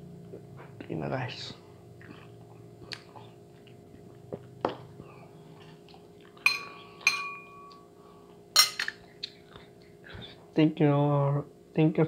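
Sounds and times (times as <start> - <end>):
plate clinking with ringing tone: 6.4 - 7.8, 8.6 - 8.8.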